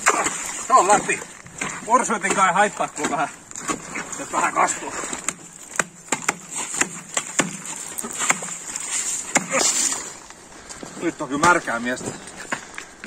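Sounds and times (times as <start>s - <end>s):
axe and chisel chopping ice: 5.1s - 9.9s.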